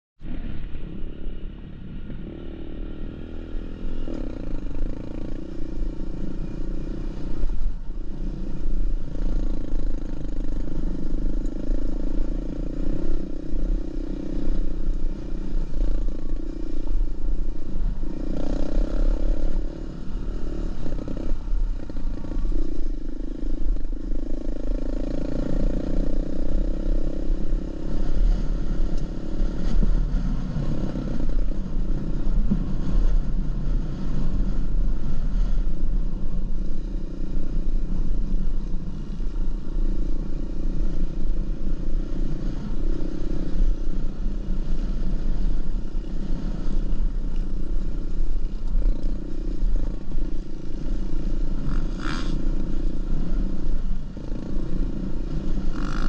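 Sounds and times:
dirt bike engine revving: 2.2s - 35.7s, 48.4s - 53.5s, 54.2s - 56.0s.

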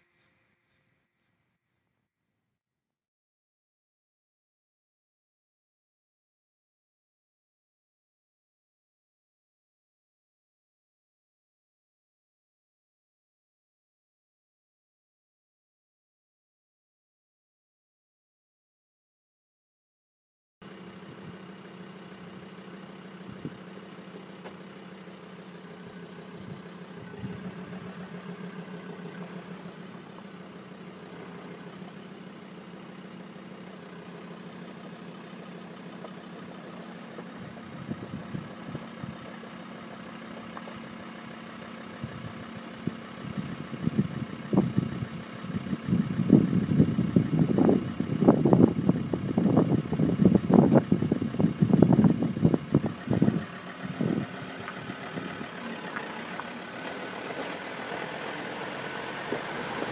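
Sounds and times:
car engine idling: 20.6s - 59.9s.

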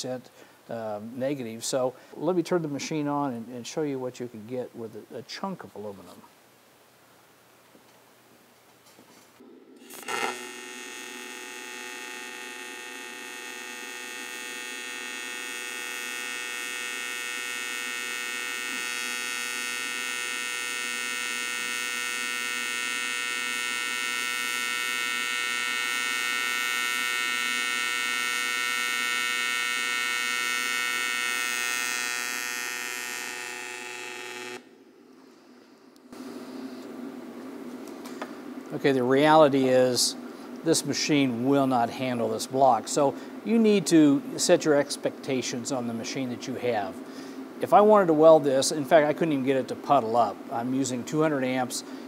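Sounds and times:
welding arc buzzing: 9.4s - 34.7s
welding arc striking crack: 9.8s - 21.5s.

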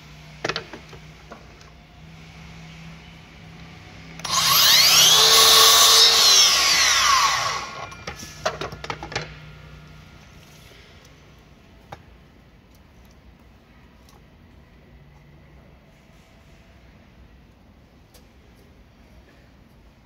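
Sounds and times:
miter saw cutting wood: 4.2s - 8.1s.

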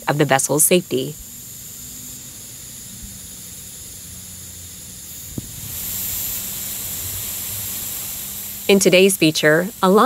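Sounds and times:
water sprinklers spraying: 0.0s - 10.0s.

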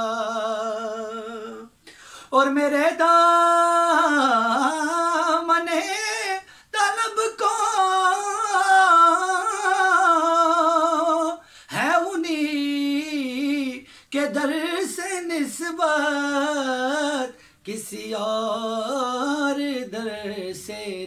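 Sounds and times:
man singing unaccompanied: 0.0s - 21.0s.

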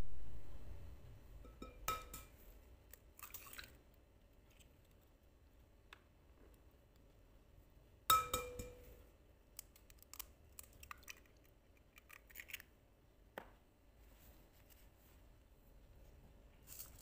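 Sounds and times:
egg clinking on glass bowl: 1.5s - 2.3s, 8.1s - 8.9s
eggshell crackling: 9.5s - 12.8s.

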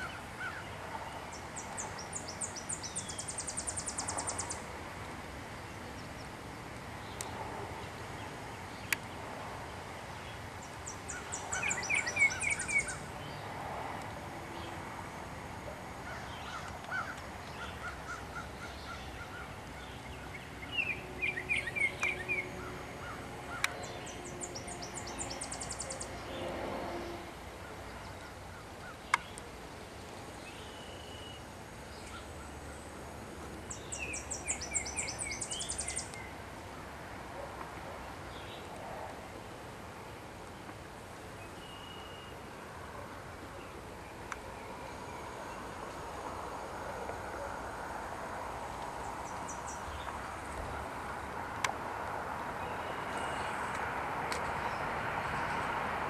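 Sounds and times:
songbird chattering song: 0.0s - 4.7s, 10.1s - 13.6s, 16.0s - 26.5s, 33.7s - 36.4s, 48.8s - 51.2s, 52.5s - 54.9s
faint background hiss: 0.0s - 56.0s
small birds chirping: 10.2s - 13.5s, 16.1s - 26.3s, 33.7s - 36.4s, 48.9s - 51.2s.

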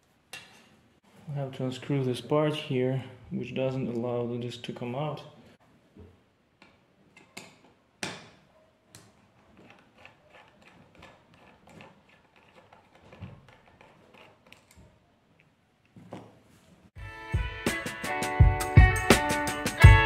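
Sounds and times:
screwdriver metallic clicks and scrapes: 8.9s - 14.9s.

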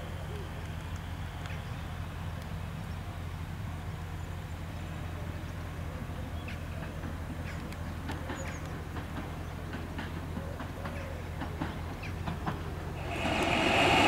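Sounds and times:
diesel railbus engine drone: 0.0s - 14.0s.

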